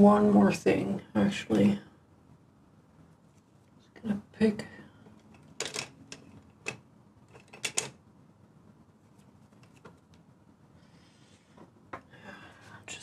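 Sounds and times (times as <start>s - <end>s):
painting tools clicking and tapping: 5.1s - 8.0s, 9.5s - 10.2s.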